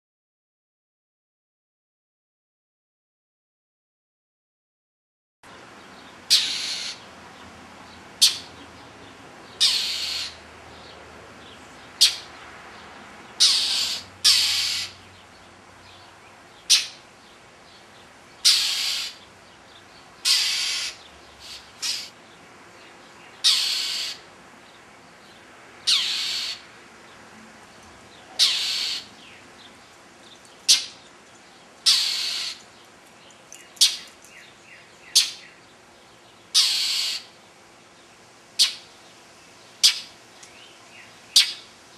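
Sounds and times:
mockingbird harsh scolding calls: 0:06.3 - 0:07.1, 0:08.2 - 0:08.7, 0:09.5 - 0:10.5, 0:11.8 - 0:12.4, 0:13.3 - 0:15.1, 0:16.6 - 0:17.1, 0:18.4 - 0:22.2, 0:23.3 - 0:24.3, 0:25.8 - 0:26.7, 0:28.1 - 0:29.8, 0:30.6 - 0:31.0, 0:31.8 - 0:32.7, 0:33.6 - 0:35.6, 0:36.2 - 0:37.4, 0:38.6 - 0:39.0, 0:39.7 - 0:41.8.

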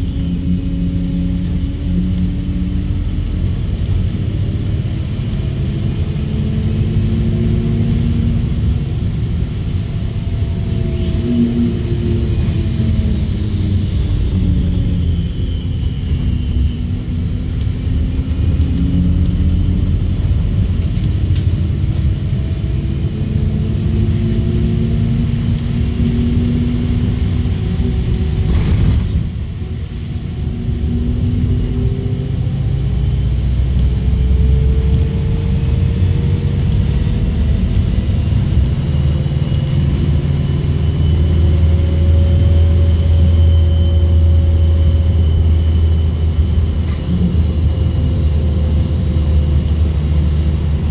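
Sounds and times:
bus engine and road rumble: 0:00.0 - 0:50.9
drivetrain whine: 0:00.0 - 0:50.9.

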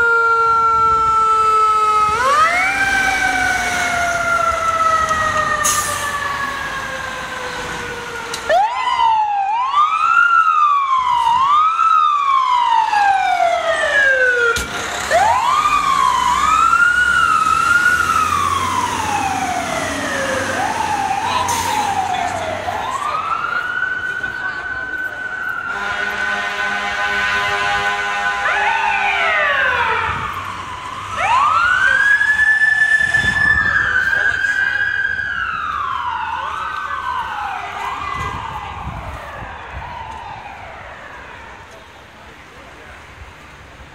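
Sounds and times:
fire truck siren wailing: 0:00.0 - 0:43.5.

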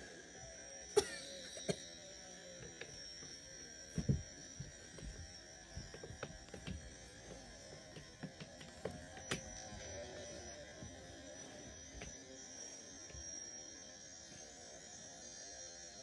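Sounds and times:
high-pitched whine: 0:00.0 - 0:16.0
small clicks and knocks: 0:05.8 - 0:09.7.

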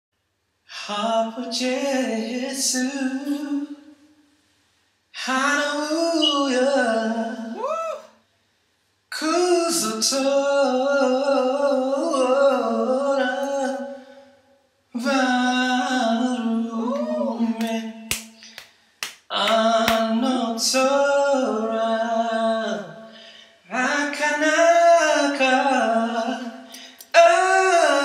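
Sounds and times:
man singing unaccompanied: 0:00.7 - 0:04.0, 0:09.1 - 0:14.1, 0:14.9 - 0:18.1, 0:19.3 - 0:23.1, 0:23.7 - 0:28.0.

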